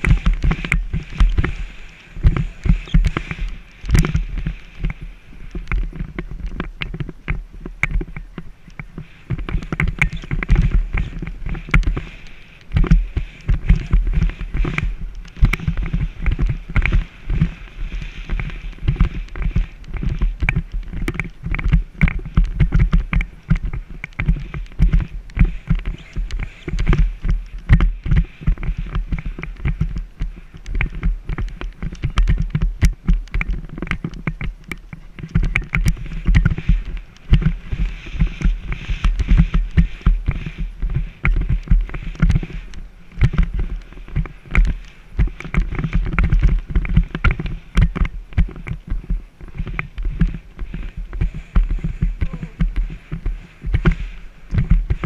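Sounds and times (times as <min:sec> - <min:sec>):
horse hoofbeats on grass: 0:00.0 - 0:55.0
rider and tack moving: 0:00.0 - 0:55.0.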